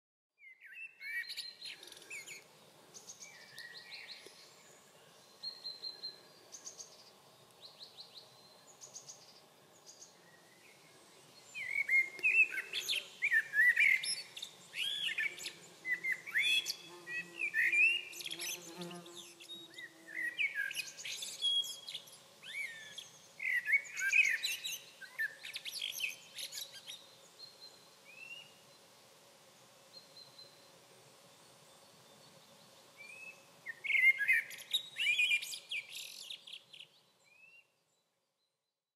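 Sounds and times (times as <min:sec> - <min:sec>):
blackbird singing: 0:00.4 - 0:02.4, 0:07.6 - 0:28.5, 0:33.0 - 0:37.7.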